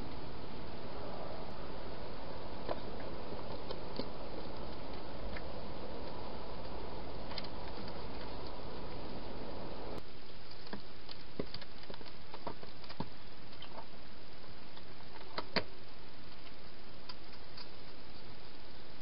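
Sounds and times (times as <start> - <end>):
steady background hiss: 0.0 - 19.0.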